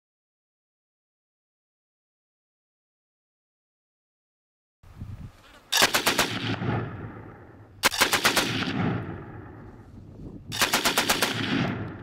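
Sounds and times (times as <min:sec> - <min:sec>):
machine gun bursts: 0:05.7 - 0:06.4, 0:07.8 - 0:08.6, 0:10.6 - 0:11.5.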